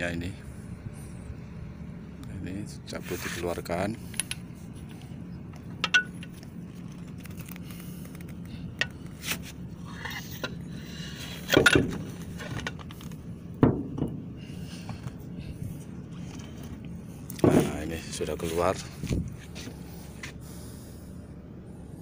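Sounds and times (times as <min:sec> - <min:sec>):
steady low hum: 0:00.0 - 0:22.0
metal parts clinking and knocking: 0:05.5 - 0:07.0, 0:11.4 - 0:13.0.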